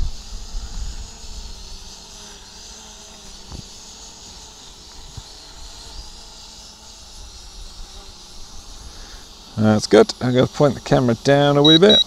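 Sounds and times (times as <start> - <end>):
wind rumbling on microphone: 0.0 - 1.7
quadcopter motors whining: 11.0 - 12.0.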